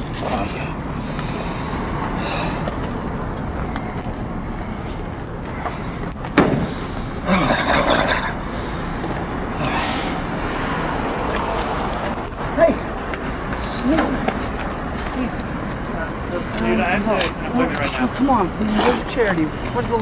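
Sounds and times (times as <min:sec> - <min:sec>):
traffic noise: 0:00.0 - 0:20.0
sharp thump: 0:06.4 - 0:06.7.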